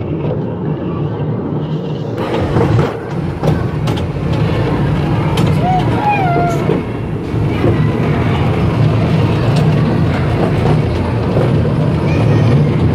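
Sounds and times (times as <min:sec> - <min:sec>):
ride-on train rumbling on track: 0:00.0 - 0:12.9.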